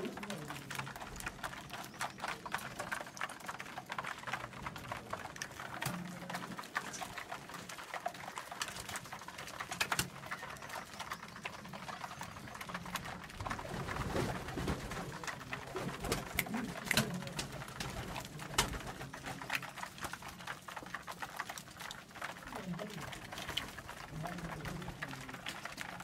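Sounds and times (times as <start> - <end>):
pigeons cooing: 0.0 - 20.2
beaks tapping on plastic tray: 0.0 - 26.0.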